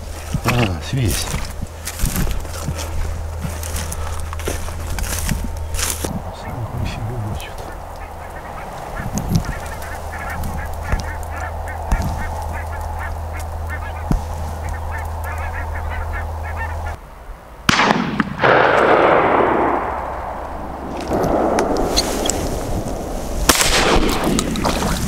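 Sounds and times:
waterfowl honking: 5.5s - 17.0s
shotgun shot: 17.7s - 20.4s, 23.5s - 24.5s.

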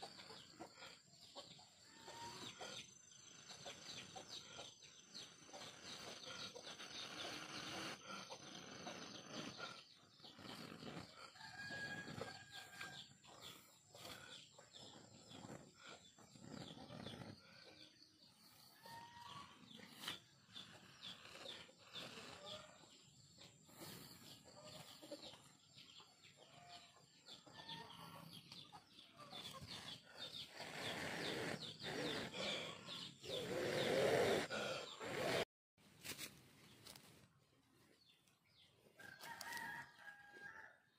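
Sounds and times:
chickens clucking: 0.0s - 35.0s
rooster crowing: 11.4s - 13.1s, 39.0s - 40.8s.

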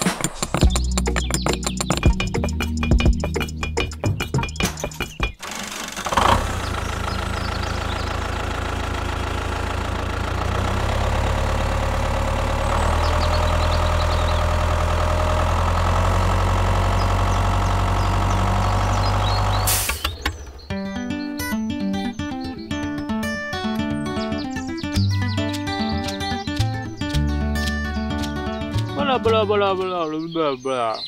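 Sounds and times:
tractor engine idling: 0.0s - 20.7s.

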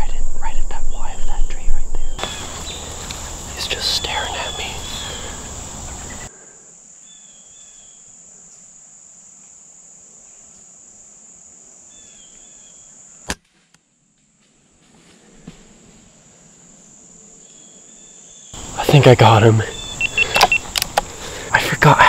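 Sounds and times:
bird chirping: 0.0s - 6.3s, 17.4s - 21.4s
insects droning: 0.0s - 22.0s.

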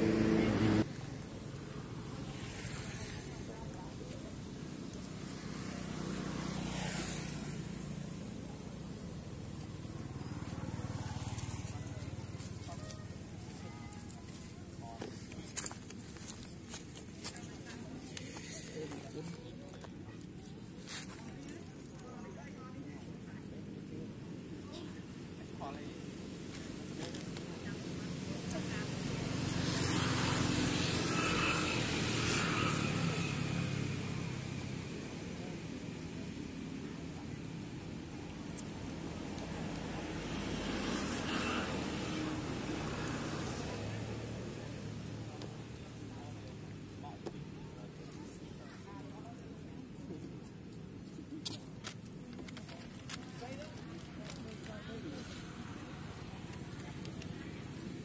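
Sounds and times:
passing vehicle engine: 0.0s - 16.7s, 20.8s - 50.3s.

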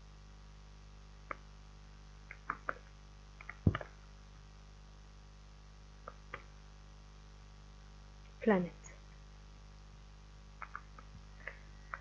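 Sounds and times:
faint low hum: 0.0s - 12.0s
typing on computer keyboard: 10.6s - 12.0s.

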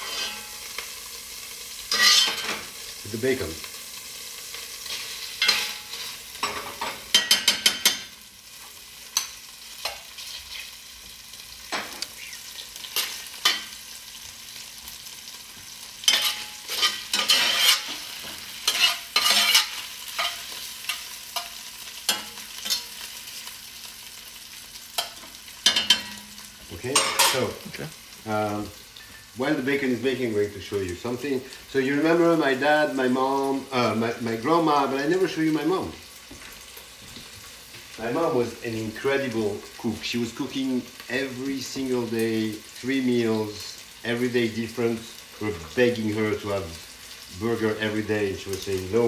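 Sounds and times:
metal spoon scraping a pot: 0.0s - 0.5s, 1.9s - 2.5s, 16.1s - 18.0s, 18.6s - 21.5s
bacon sizzling in a pot: 0.0s - 49.0s.

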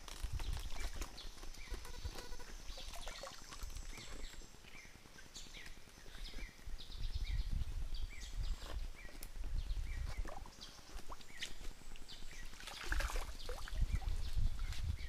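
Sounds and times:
bird chirps: 0.5s - 14.8s
water sloshing around hands: 12.5s - 14.1s.

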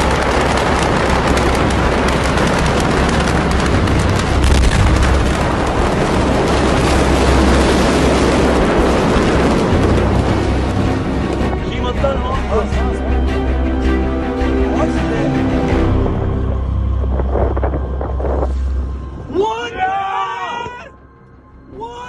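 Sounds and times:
fire crackling and popping: 0.0s - 12.2s
deep rumble: 0.0s - 19.4s.

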